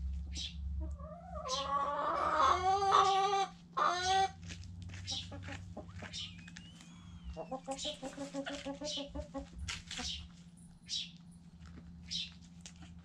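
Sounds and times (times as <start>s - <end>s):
chicken calling: 0.3s - 4.4s, 5.0s - 10.3s.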